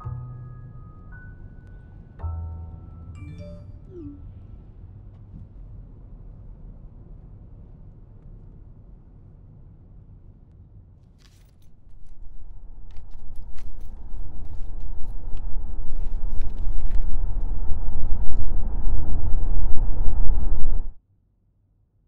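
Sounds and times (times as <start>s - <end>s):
car road and engine rumble: 11.6s - 21.0s.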